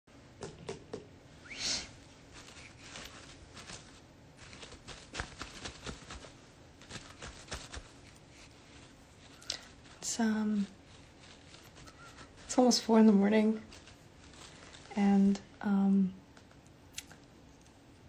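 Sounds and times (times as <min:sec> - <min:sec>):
fabric rustling: 0:01.8 - 0:15.9.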